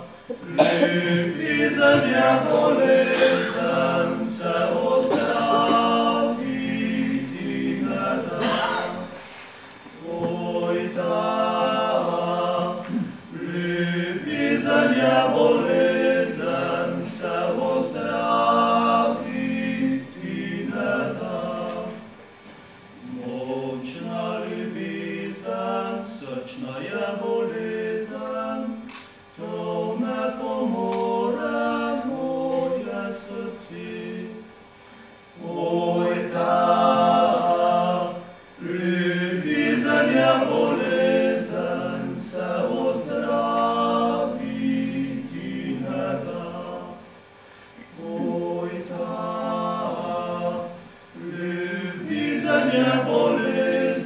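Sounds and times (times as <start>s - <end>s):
male vocal quartet singing: 0.0s - 9.2s, 9.8s - 22.1s, 22.9s - 34.5s, 35.3s - 54.0s.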